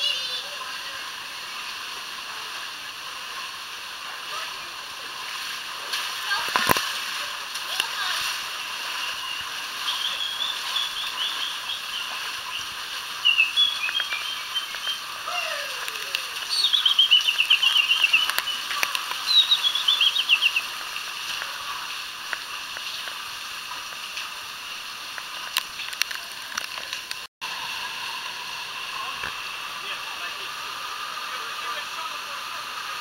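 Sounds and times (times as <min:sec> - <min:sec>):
stream rushing over rocks: 0:00.0 - 0:33.0
bird singing trilled notes: 0:09.8 - 0:15.1, 0:16.4 - 0:20.7.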